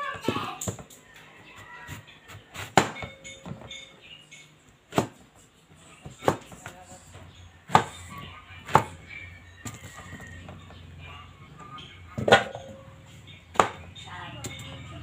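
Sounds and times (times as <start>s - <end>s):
knife chopping on cutting board: 7.7s - 8.0s.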